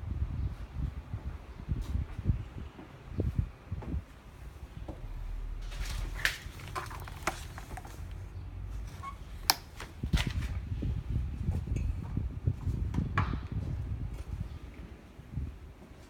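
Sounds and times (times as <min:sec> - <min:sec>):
phone handling rumble: 0:05.0 - 0:08.2.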